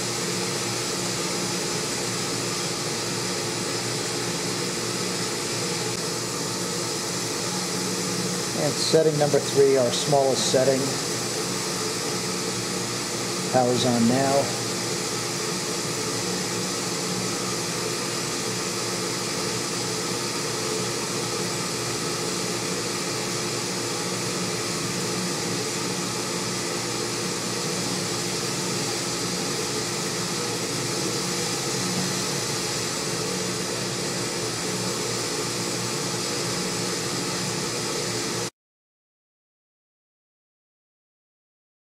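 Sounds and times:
induction heater whirring: 0.0 - 38.5.

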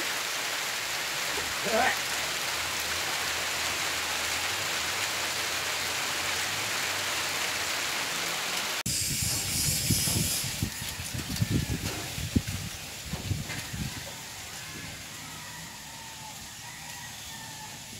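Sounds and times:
steady hiss: 8.5 - 16.8.

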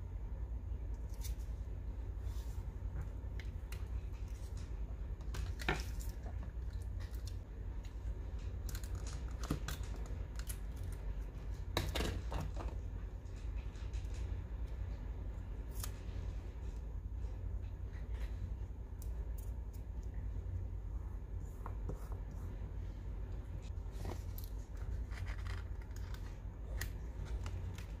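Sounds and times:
steady low hum: 0.0 - 28.0
paper handling: 23.7 - 28.0.

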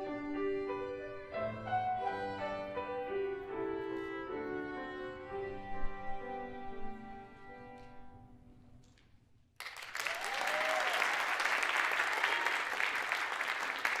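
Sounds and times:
violin and piano chord: 0.0 - 8.0
audience applause: 9.6 - 14.0.

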